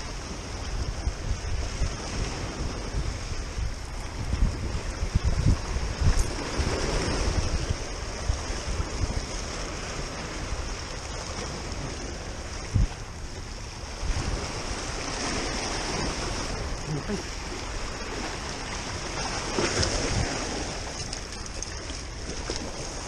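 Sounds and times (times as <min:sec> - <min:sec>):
waves splashing against rocks: 0:00.0 - 0:23.0
wind buffeting microphone: 0:00.0 - 0:23.0.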